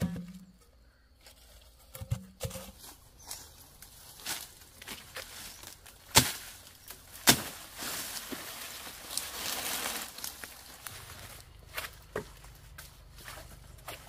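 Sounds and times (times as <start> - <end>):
leaves rustling: 1.2 - 14.0
machete chopping plant stalk: 6.1 - 6.6, 7.2 - 7.6.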